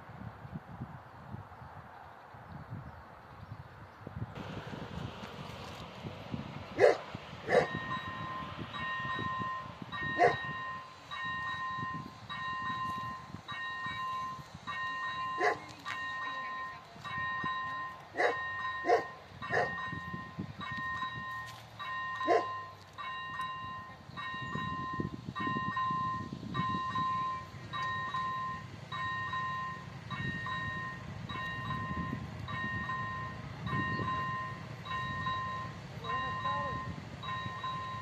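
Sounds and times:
dog barking: 6.8 - 7.7, 10.2 - 10.4, 15.4 - 15.6, 18.2 - 19.8, 22.2 - 22.5.

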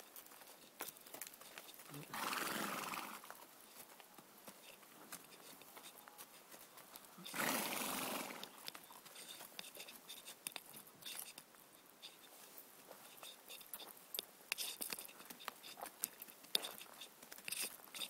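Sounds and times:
hooves on stony ground: 0.0 - 18.0
horse snorting: 1.9 - 3.3, 7.2 - 8.6.

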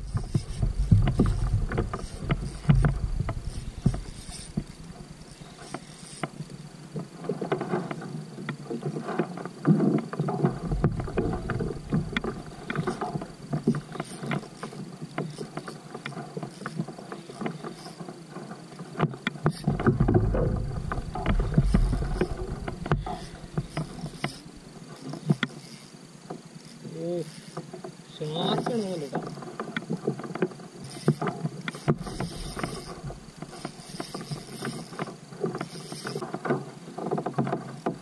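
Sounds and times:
low rumbling: 0.0 - 5.2, 10.5 - 13.4, 19.6 - 24.8
fishing reel clicking: 0.0 - 6.8, 11.0 - 18.1, 19.2 - 26.0, 26.6 - 30.0, 30.8 - 36.3.

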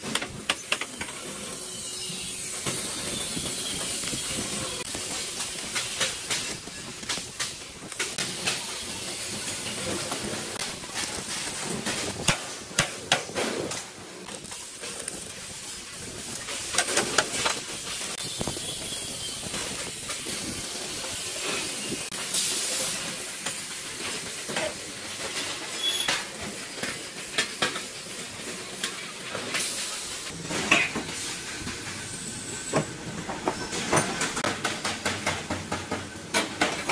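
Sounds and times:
welding arc hissing crackle: 0.0 - 34.5.

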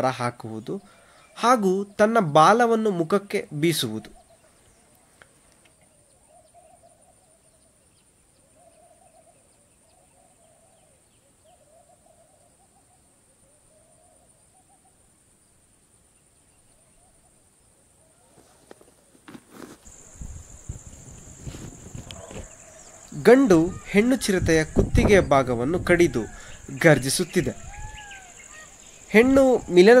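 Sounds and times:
faint hooting calls: 3.8 - 15.2, 19.9 - 30.0
steady high hiss: 12.2 - 30.0.

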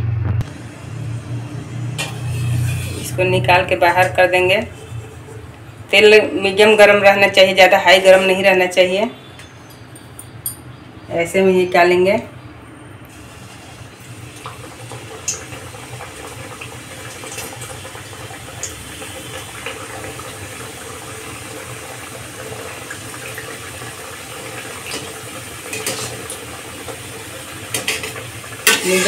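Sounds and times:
deep-frying sizzle: 0.0 - 5.8, 13.0 - 29.0.

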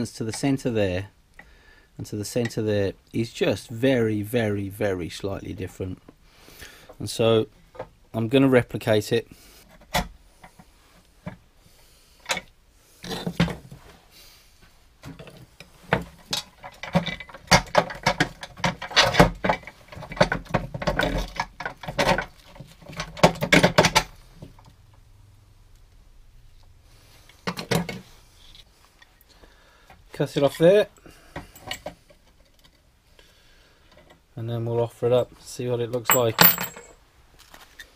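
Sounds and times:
metal clinks and scrapes: 36.0 - 37.0.

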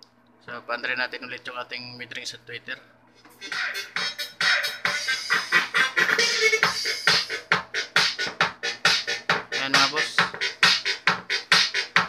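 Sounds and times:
electronic dance music: 3.3 - 12.0.

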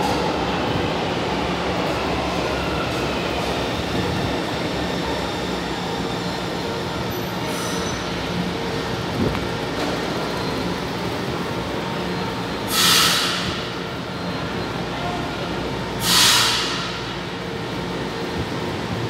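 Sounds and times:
compressed air hiss: 12.7 - 13.4, 16.0 - 16.8.

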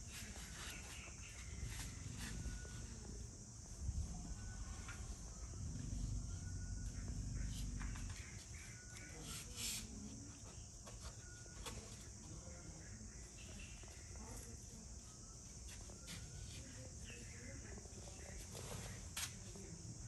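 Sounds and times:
insects droning: 0.0 - 20.0
low rumble: 3.6 - 8.0.

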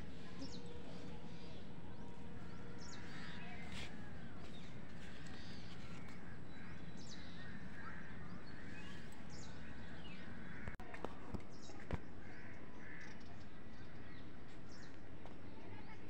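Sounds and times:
small birds chirping: 0.0 - 10.8.

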